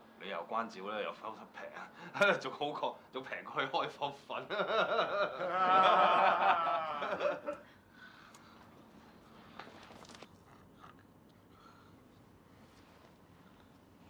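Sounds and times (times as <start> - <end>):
people laughing heartily: 4.5 - 7.7.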